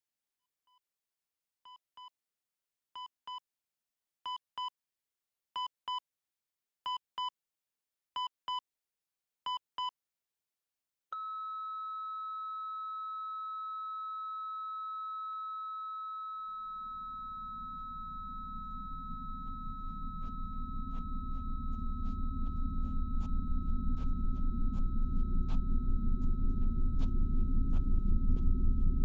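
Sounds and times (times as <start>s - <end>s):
long steady high tone: 11.2s - 29.0s
low rumble: 16.8s - 29.0s.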